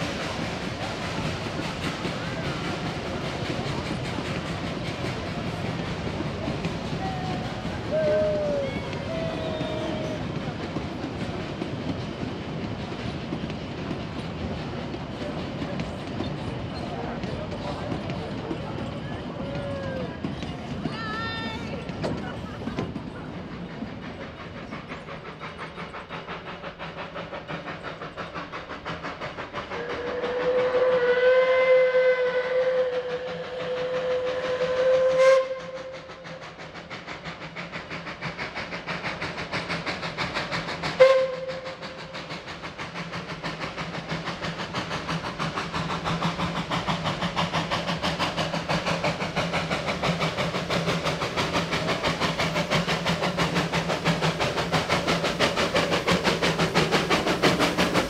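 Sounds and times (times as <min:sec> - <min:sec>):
steam locomotive exhaust chuffing: 0:00.0 - 0:58.0
steam whistle blasts: 0:07.3 - 0:10.4, 0:29.8 - 0:36.3, 0:41.0 - 0:41.8.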